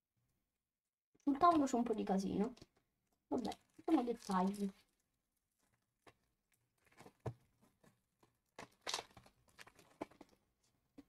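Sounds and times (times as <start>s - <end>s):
foil wrapper crinkling and tearing: 3.3s - 5.0s, 7.9s - 10.4s.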